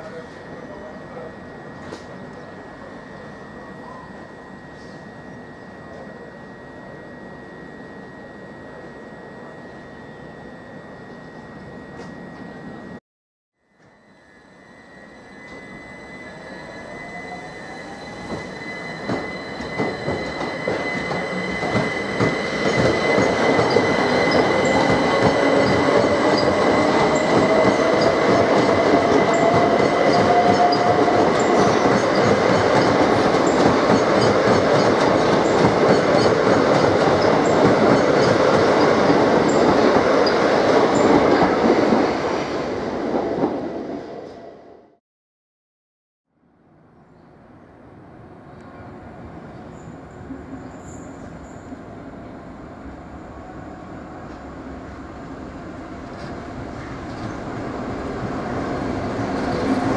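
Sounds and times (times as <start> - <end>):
train wheels on rails: 0.0 - 2.9, 15.3 - 44.4, 55.6 - 59.9
high squeal and whine: 13.6 - 41.3.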